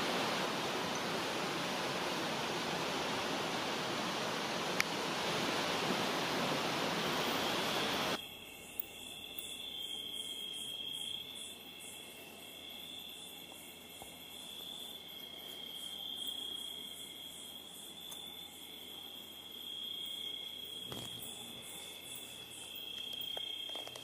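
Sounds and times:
pulsing insect chirp: 6.7s - 24.0s
insects trilling: 7.1s - 24.0s.

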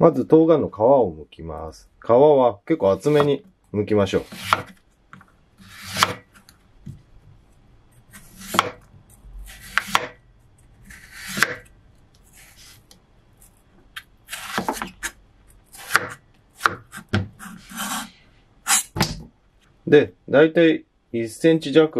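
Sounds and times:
knife scraping through melon: 4.1s - 4.8s, 5.6s - 6.5s, 10.8s - 11.6s, 12.3s - 13.6s, 14.3s - 15.2s, 16.9s - 18.9s.

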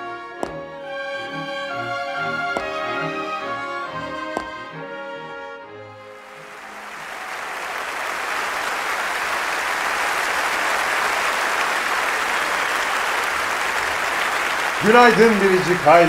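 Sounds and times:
brass-led orchestral music: 0.0s - 10.9s
applause: 6.2s - 16.0s.

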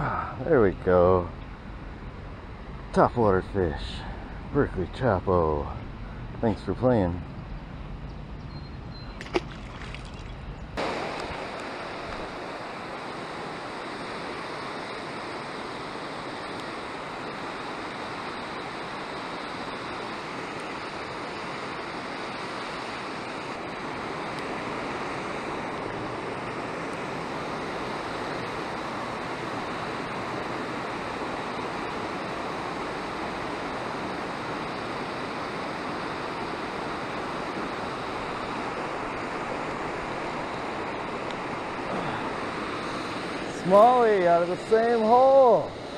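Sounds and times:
whitewater rushing: 10.8s - 45.9s.

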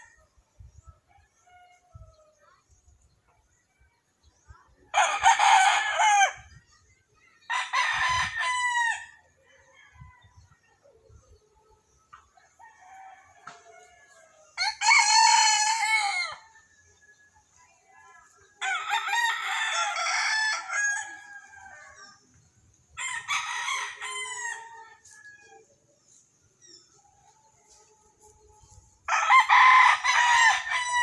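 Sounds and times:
rooster crowing: 14.6s - 16.6s, 29.1s - 31.0s.

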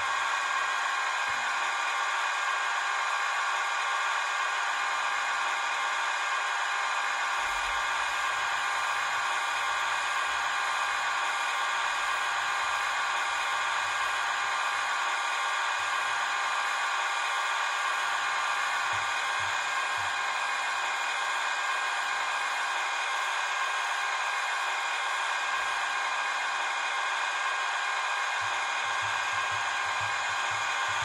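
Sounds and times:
small electric motors whirring: 6.6s - 31.0s.

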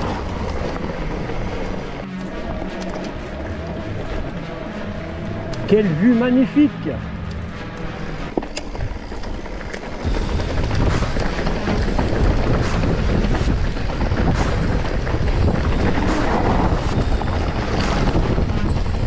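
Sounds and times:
bike rattling: 0.0s - 5.5s, 7.4s - 19.0s
tyres rolling over dirt and stones: 0.0s - 5.8s, 8.0s - 19.0s
wind buffeting the microphone: 11.8s - 19.0s.

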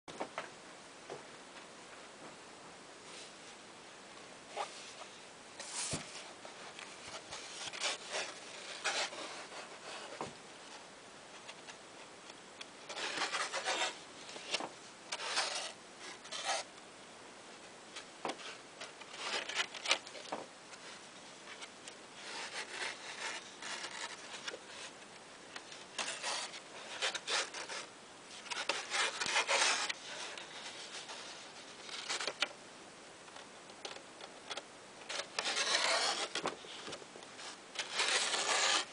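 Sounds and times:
book pages rustling: 4.5s - 10.8s, 12.6s - 16.7s, 17.9s - 32.6s, 33.3s - 38.9s.

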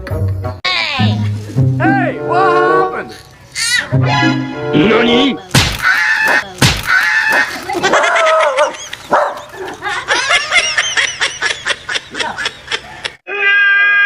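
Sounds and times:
dog barking and yelping: 7.8s - 9.8s.

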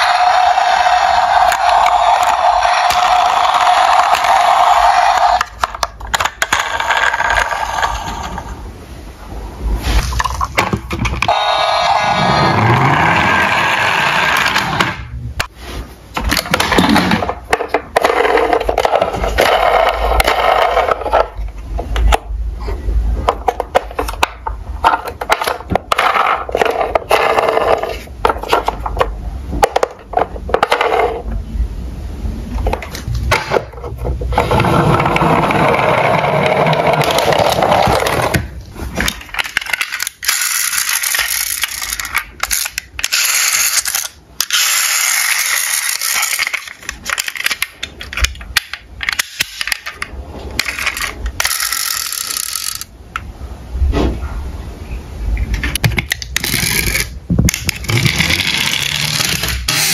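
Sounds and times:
toy cars clattering in a box: 39.0s - 52.9s.

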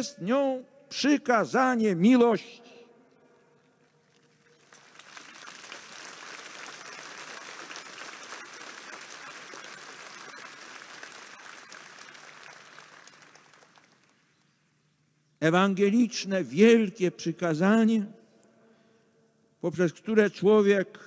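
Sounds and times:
large crowd applauding: 4.0s - 14.4s.

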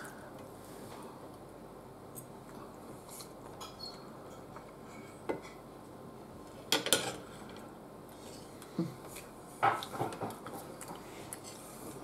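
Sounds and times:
cutlery clinking on a plate: 3.6s - 5.6s.

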